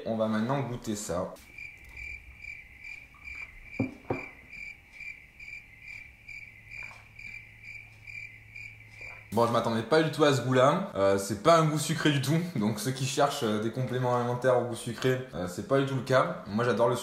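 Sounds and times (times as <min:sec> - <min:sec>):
cricket chirping: 0:01.3 - 0:10.3.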